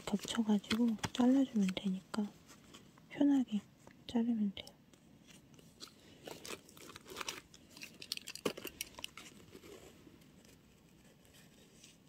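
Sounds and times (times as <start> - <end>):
paper crinkling: 0.0 - 2.0, 5.2 - 12.0.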